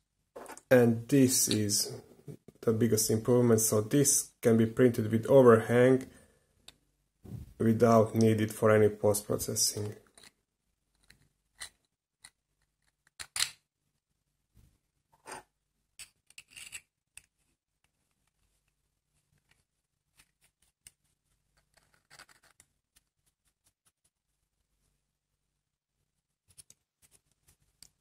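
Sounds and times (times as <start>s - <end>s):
plastic parts clicking and scraping: 16.0s - 18.4s, 19.3s - 23.1s.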